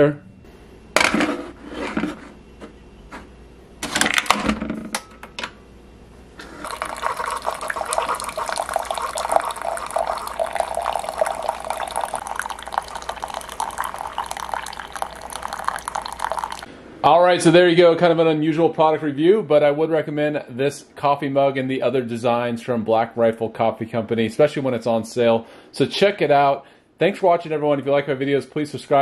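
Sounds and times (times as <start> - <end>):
coffee pouring into a mug: 6.4 - 16.7.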